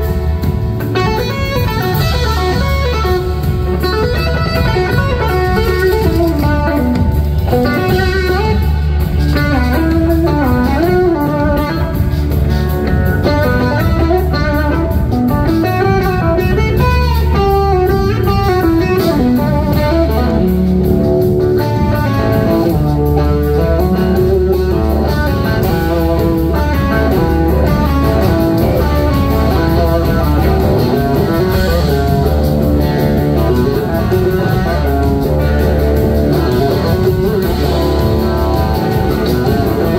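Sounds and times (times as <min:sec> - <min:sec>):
blues-rock band playing: 0:00.0 - 0:39.9
electric guitar lead solo: 0:00.0 - 0:39.9.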